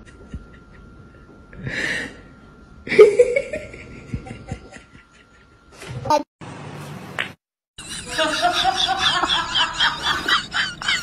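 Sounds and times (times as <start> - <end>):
person laughing: 2.9 - 5.5, 7.8 - 11.0.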